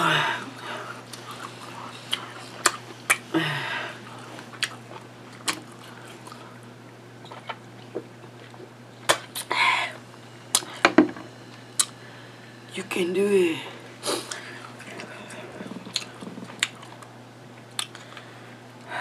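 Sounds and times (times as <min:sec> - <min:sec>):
short hummed vocal: 0:00.0 - 0:04.3, 0:13.5 - 0:16.8
steady low hum: 0:00.0 - 0:19.0
swallowing: 0:14.3 - 0:17.1
lip smacks and clicks: 0:17.7 - 0:18.2.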